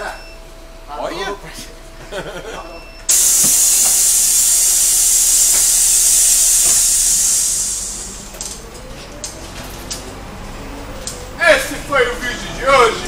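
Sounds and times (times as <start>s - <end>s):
compressed air hissing: 3.1s - 8.7s.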